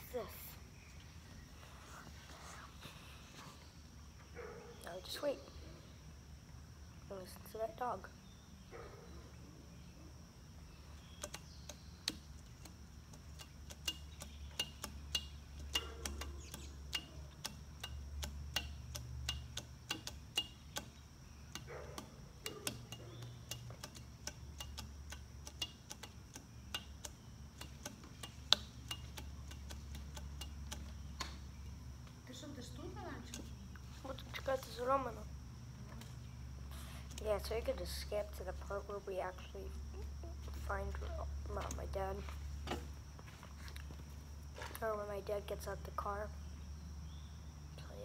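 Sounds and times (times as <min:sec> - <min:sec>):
insects chirping: 0:00.0 - 0:48.0
sharp clicks and ticks: 0:11.0 - 0:36.1.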